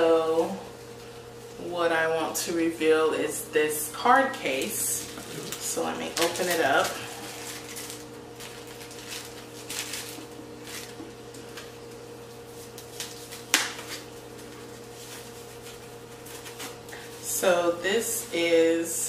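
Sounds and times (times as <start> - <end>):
steady low hum: 0.0 - 19.0
wrapping crinkling: 4.5 - 17.3.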